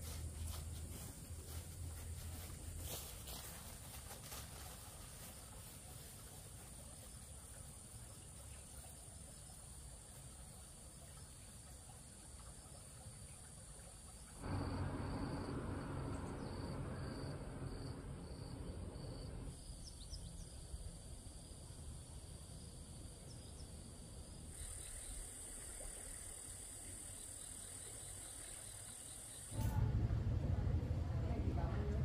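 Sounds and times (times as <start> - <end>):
insects droning: 0.0 - 30.0
faint pulsing chirp: 11.0 - 20.8, 24.6 - 30.0
low rumbling noise: 14.4 - 19.6, 29.6 - 32.0.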